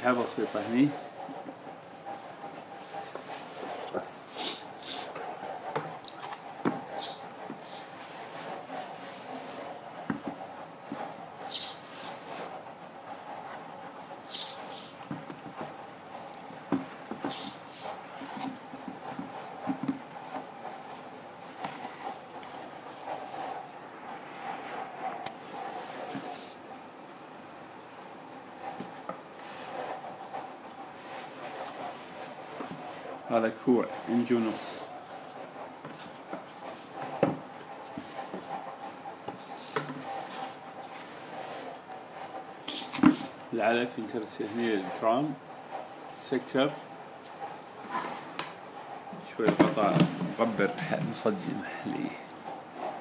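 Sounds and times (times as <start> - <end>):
plastic knocks and scrapes: 5.2 - 7.6, 8.3 - 11.2, 16.6 - 17.5, 18.2 - 20.8, 35.8 - 38.6, 49.4 - 51.3
plastic bucket knocks and rustles: 49.4 - 51.2.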